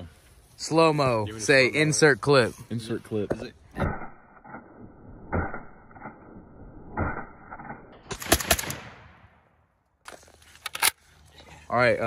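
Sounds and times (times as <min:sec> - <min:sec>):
slowed-down dull gunshots: 0:03.8 - 0:09.8
rifle gunshots echoing: 0:08.1 - 0:09.6.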